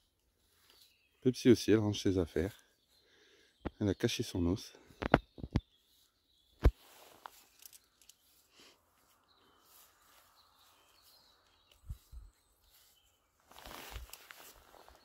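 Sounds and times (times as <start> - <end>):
dry leaves rustling: 12.9 - 15.0.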